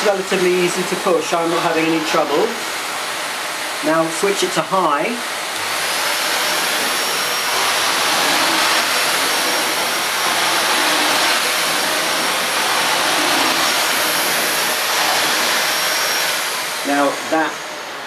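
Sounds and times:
vacuum cleaner running on carpet: 0.0s - 18.0s.

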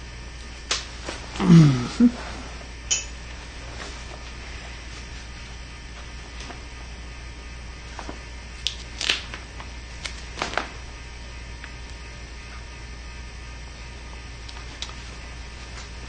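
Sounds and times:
steady low hum: 0.0s - 16.0s
tape and fabric crinkling: 7.9s - 10.8s.

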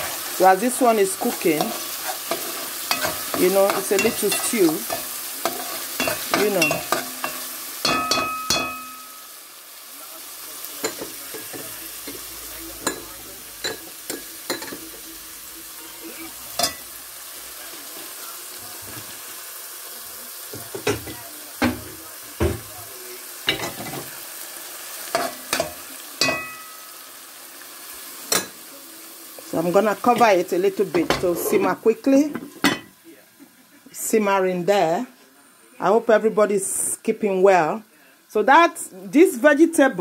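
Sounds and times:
stew sizzling in pot: 0.0s - 40.0s
metal spoon scraping pot: 1.2s - 7.4s.

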